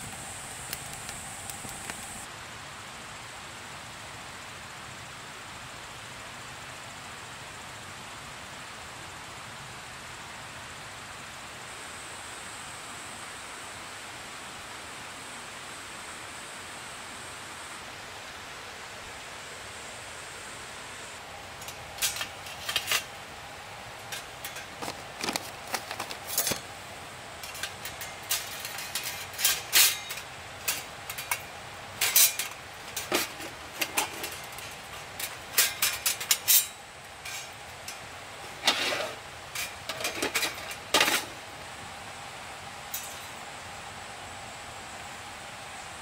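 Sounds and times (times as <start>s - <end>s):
steady background hiss: 0.0s - 46.0s
metal cookware clinking: 21.6s - 23.1s, 24.0s - 26.7s, 27.4s - 41.3s, 42.9s - 43.3s.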